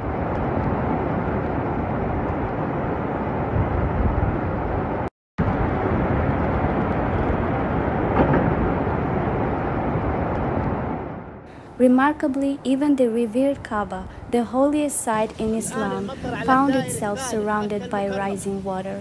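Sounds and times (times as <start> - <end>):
floodwater rushing: 14.8 - 19.0.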